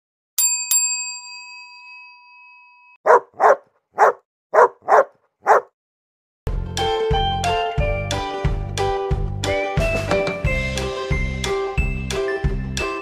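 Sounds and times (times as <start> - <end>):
dog barking: 3.0 - 5.8.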